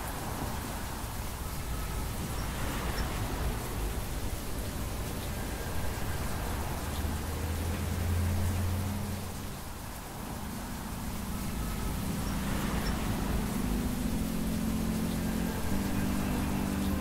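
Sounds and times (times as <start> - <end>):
steady rain: 0.0 - 17.0
higher hum: 10.4 - 17.0.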